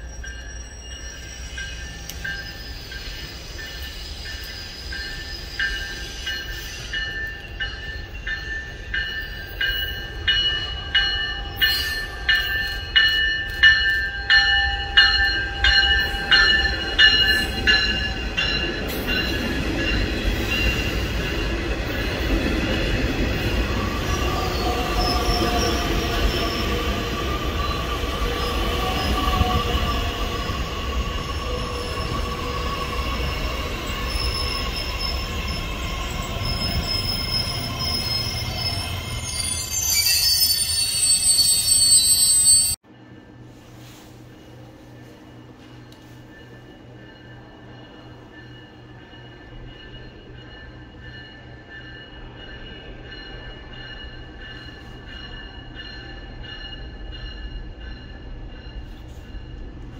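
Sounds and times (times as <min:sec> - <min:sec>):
high-pitched wheel squeal: 0:00.0 - 0:07.0, 0:23.7 - 0:42.8
train cars rumbling by: 0:00.0 - 0:59.9.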